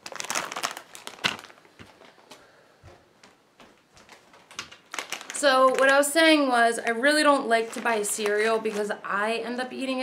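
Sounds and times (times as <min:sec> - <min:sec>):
foil bag crinkling: 0:00.0 - 0:02.3, 0:04.0 - 0:09.8.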